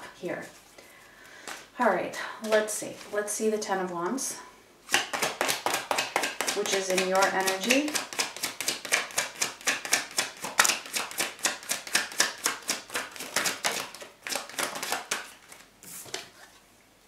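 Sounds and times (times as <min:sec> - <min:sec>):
cards being shuffled: 0:04.9 - 0:16.5.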